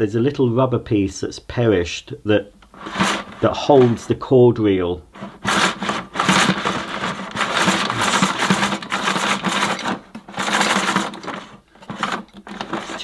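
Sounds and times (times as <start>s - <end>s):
power cord rattling: 2.6s - 4.2s, 5.2s - 13.0s
cord reel whirring: 2.7s - 4.1s, 5.2s - 13.0s.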